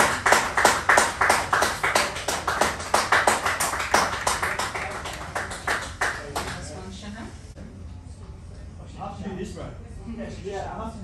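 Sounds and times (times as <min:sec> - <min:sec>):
people clapping: 0:00.0 - 0:06.8.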